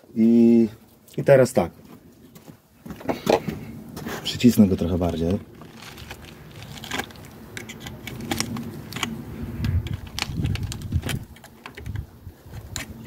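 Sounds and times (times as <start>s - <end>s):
pliers twisting wire: 5.6s - 13.0s.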